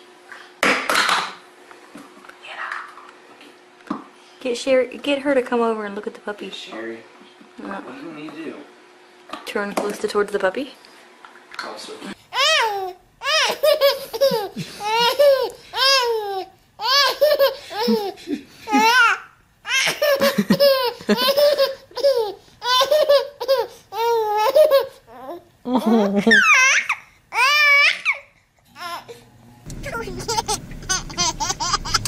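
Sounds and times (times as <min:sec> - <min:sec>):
baby giggling and squealing: 0:12.4 - 0:28.2, 0:29.8 - 0:32.0.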